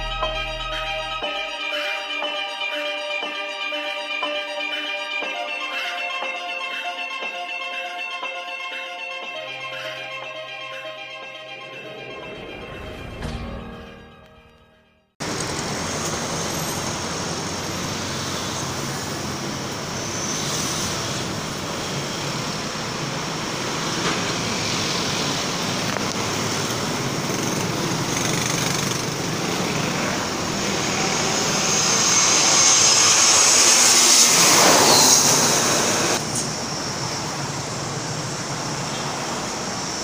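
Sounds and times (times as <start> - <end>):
road traffic noise: 0.0 - 14.3, 15.2 - 40.0
jet engine whine: 9.4 - 13.7, 15.2 - 40.0
jet plane flying low overhead: 9.5 - 13.9, 15.2 - 40.0.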